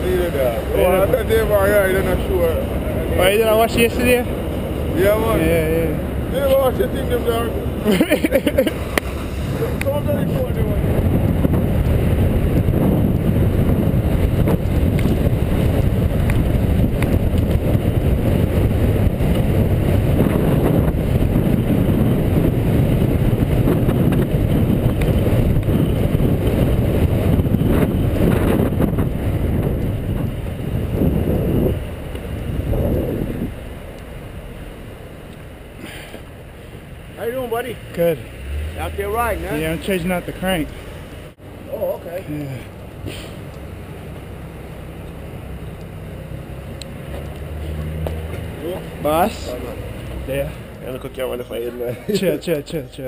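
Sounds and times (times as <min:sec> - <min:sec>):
wind buffeting microphone: 0:00.0 - 0:41.4
street traffic: 0:00.0 - 0:53.0.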